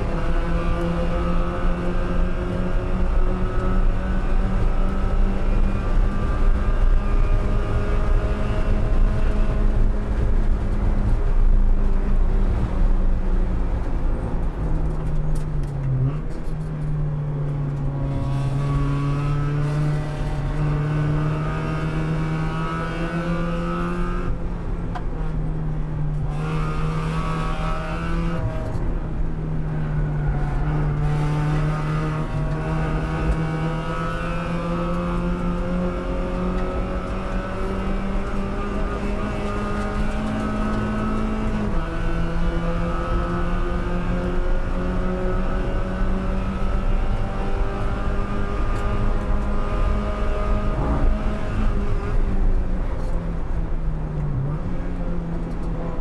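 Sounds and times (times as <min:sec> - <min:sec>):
race car engine under load: 0:00.0 - 0:56.0
road and wind noise: 0:00.0 - 0:56.0.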